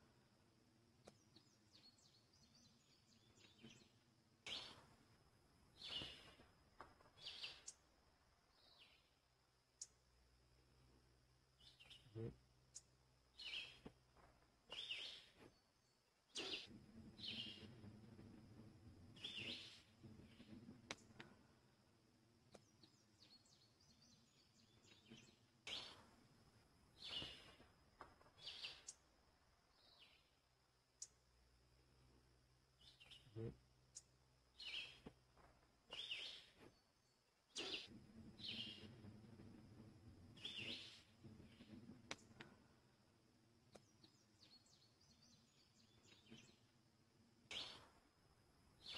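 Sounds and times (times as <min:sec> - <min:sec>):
songbird chirping: 0:00.0 - 0:48.9
faint low rumble: 0:15.7 - 0:35.9, 0:37.0 - 0:48.9.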